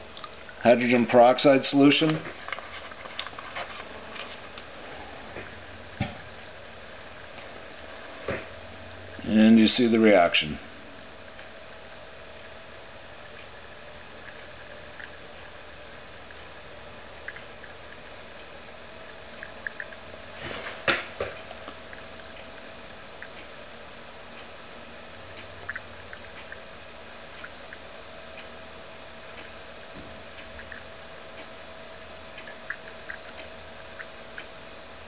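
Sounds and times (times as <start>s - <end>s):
faint steady hum: 0.0s - 35.0s
bubbles fizzing and popping: 14.1s - 23.4s, 25.6s - 28.0s, 30.6s - 31.1s, 32.0s - 34.2s.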